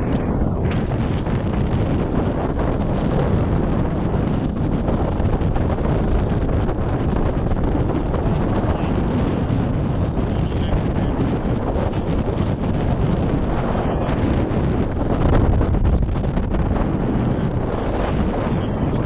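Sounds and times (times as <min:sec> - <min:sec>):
wind buffeting microphone: 0:00.0 - 0:19.0.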